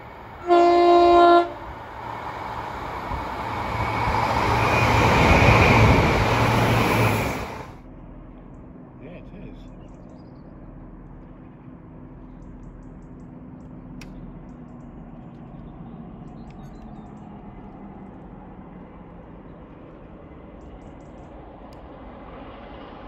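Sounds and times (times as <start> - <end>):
low hum: 0.0 - 23.0
small birds chirping: 9.3 - 10.6, 12.1 - 18.2.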